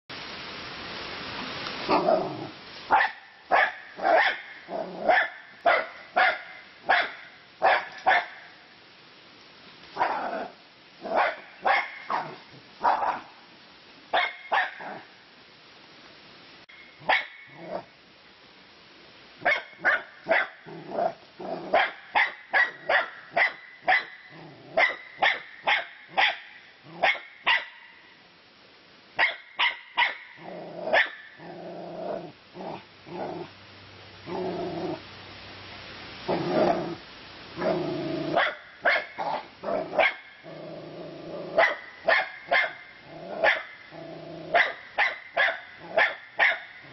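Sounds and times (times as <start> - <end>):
dog barking: 2.9 - 8.5, 11.1 - 13.3, 14.2 - 15.0, 17.0 - 17.4, 19.4 - 20.6, 21.7 - 24.2, 24.8 - 28.0, 29.2 - 30.3, 30.9 - 31.3, 38.3 - 40.3, 41.6 - 42.8, 43.4 - 43.7, 44.5 - 46.8
dog growling: 4.7 - 5.1, 20.7 - 21.8, 30.4 - 33.5, 34.2 - 35.0, 36.3 - 37.0, 37.6 - 38.4, 39.2 - 41.6, 43.0 - 44.6.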